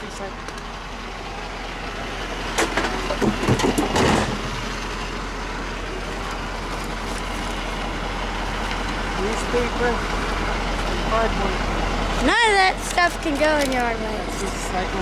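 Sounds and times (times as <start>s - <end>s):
truck engine running: 0.0s - 15.0s
clattering and thuds: 2.5s - 4.6s.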